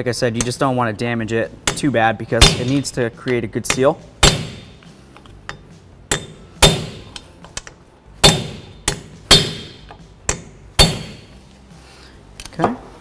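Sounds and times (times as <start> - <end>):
hammer striking metal tool: 1.6 - 4.8, 5.4 - 7.2, 8.2 - 11.4.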